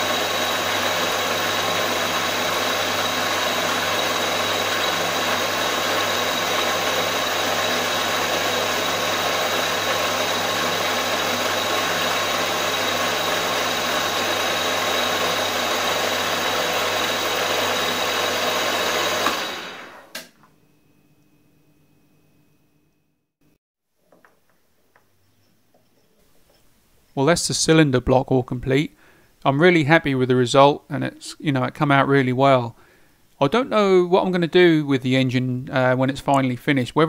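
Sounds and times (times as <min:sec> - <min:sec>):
milling machine cutting metal: 0:00.0 - 0:20.2.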